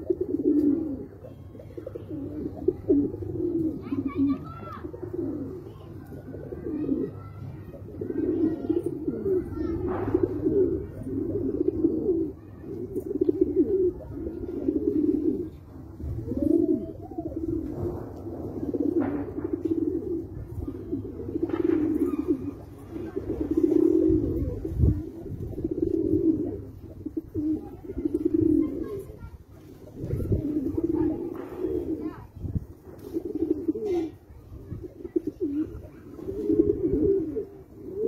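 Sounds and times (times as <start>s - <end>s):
pigeons cooing: 0.0s - 38.0s.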